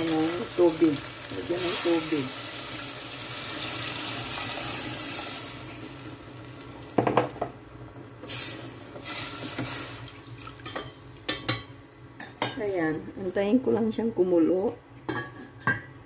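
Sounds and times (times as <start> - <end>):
water pouring into pot: 0.1 - 6.3, 8.3 - 10.7.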